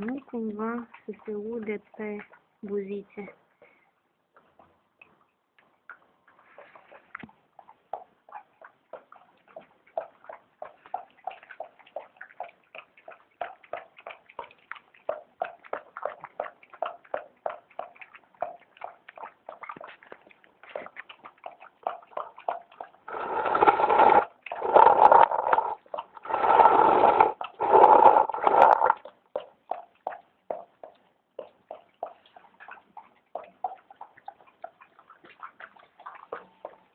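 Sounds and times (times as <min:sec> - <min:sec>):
dog chewing and smacking: 0:05.9 - 0:23.2, 0:27.3 - 0:36.9
rasping noises: 0:23.1 - 0:29.0.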